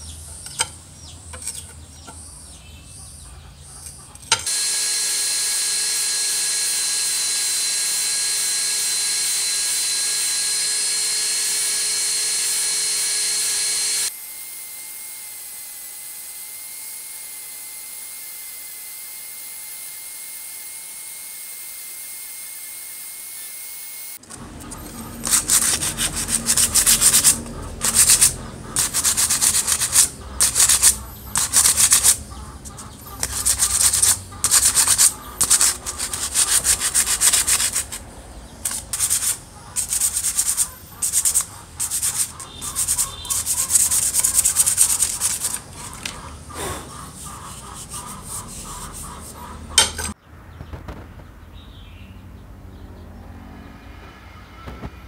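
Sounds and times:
sandpaper rubbing on wood: 24.2 - 38.0, 38.6 - 50.2.

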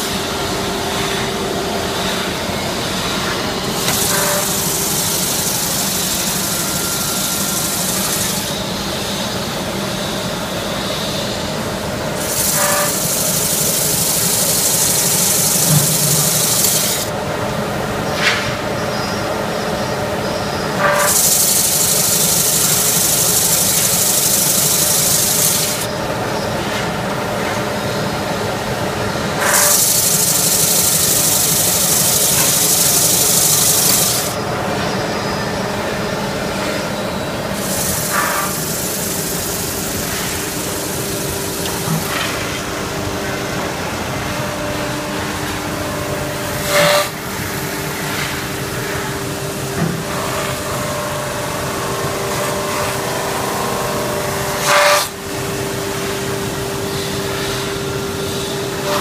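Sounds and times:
sanding machine humming: 0.0 - 9.9, 11.3 - 17.2, 20.8 - 26.0, 29.1 - 34.5, 37.3 - 42.8
abrasive sanding hiss: 3.5 - 9.2, 12.2 - 17.1, 20.8 - 25.9, 29.4 - 34.4, 37.5 - 42.5.

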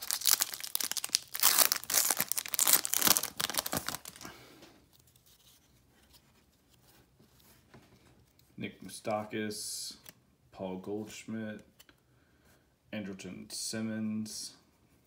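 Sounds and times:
foil wrapper tearing and crinkling: 0.0 - 4.3.

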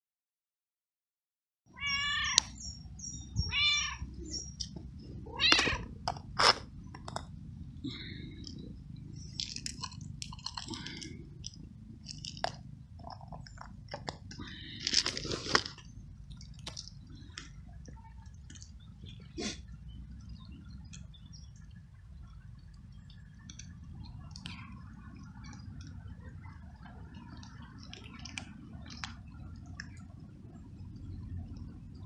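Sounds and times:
cat meowing loudly: 1.7 - 2.5, 3.4 - 4.1, 5.3 - 5.9
low background noise: 1.7 - 32.0
cat crunching dry food: 4.6 - 7.6, 8.2 - 17.6, 27.1 - 30.1.

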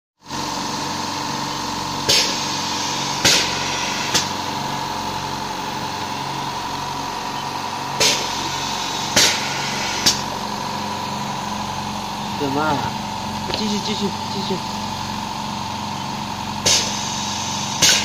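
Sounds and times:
steady mechanical hum: 0.2 - 18.0
compressed air hisses: 2.1 - 4.4, 8.0 - 10.2, 16.6 - 18.0.

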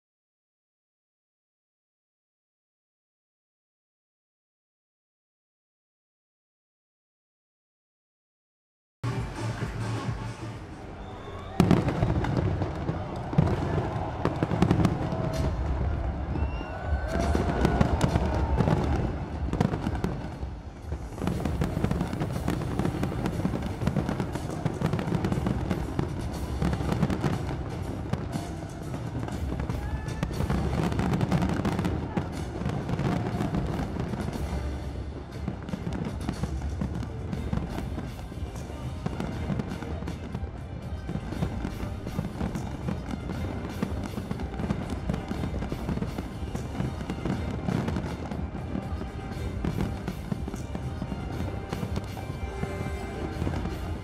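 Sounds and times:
music playing: 9.0 - 54.0
fireworks bangs and crackling: 11.0 - 54.0.

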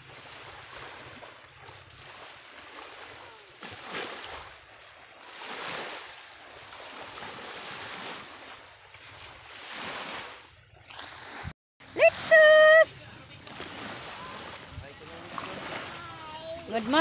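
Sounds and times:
small waves breaking on shore: 0.0 - 17.0.

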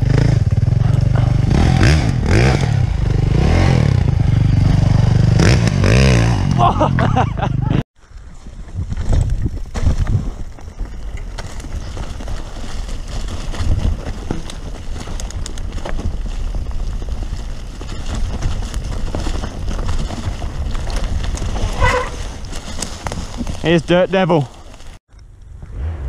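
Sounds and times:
bike rattling and clicking: 0.0 - 25.6
bike tyres rolling: 6.6 - 26.0
wind buffeting microphone: 8.1 - 26.0.

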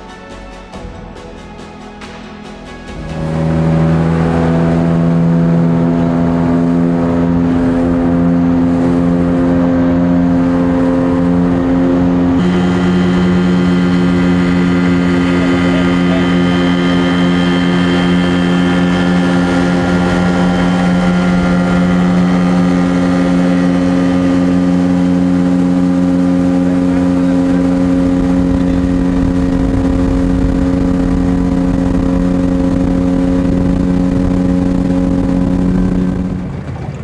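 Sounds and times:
motorboat engine running: 0.0 - 37.0.

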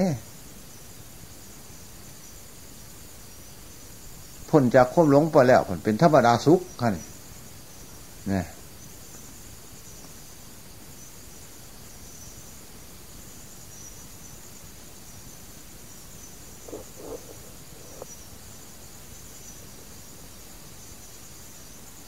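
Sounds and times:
insects chirring: 0.0 - 22.0
recording hiss: 0.0 - 22.0
faint short sounds: 16.4 - 18.2.

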